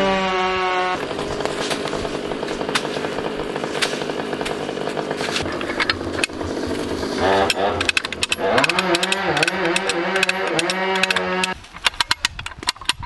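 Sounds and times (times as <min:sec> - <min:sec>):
chainsaw cutting: 0:00.0 - 0:11.6
steady rasping noise: 0:00.0 - 0:11.6
sharp clicks: 0:07.4 - 0:13.0.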